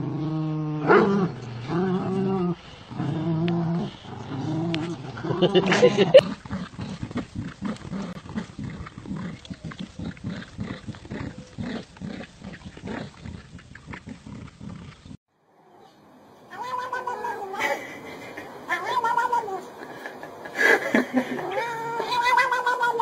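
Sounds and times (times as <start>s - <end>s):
dogs growling: 0.0s - 15.2s
cat meowing: 16.5s - 17.6s, 18.7s - 19.7s, 21.4s - 23.0s.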